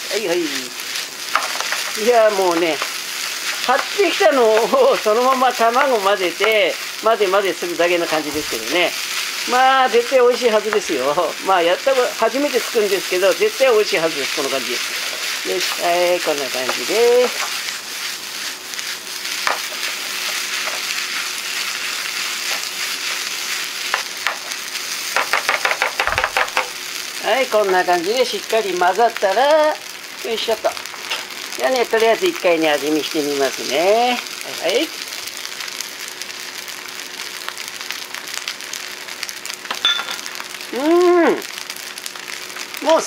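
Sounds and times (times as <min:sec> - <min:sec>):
food sizzling in a frying pan: 0:00.0 - 0:43.0
spatula scraping and knocking pan: 0:01.3 - 0:06.6, 0:14.8 - 0:21.2, 0:23.9 - 0:26.8
person humming: 0:40.7 - 0:41.4.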